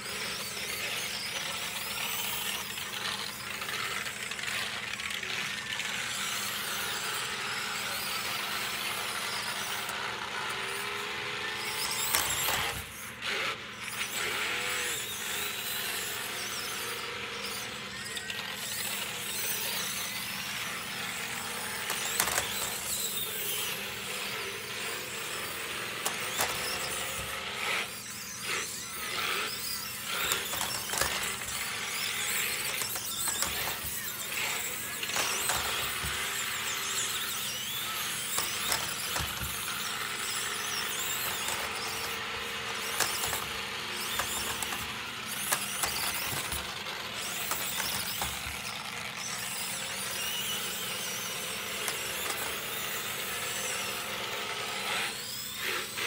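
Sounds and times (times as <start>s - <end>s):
toy truck electric motor whining: 0.0s - 56.0s.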